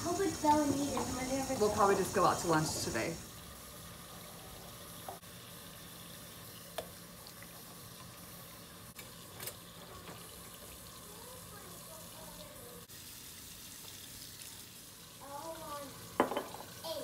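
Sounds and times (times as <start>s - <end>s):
faucet running into sink: 0.0s - 17.0s
dishes and utensils clinking: 16.2s - 16.8s.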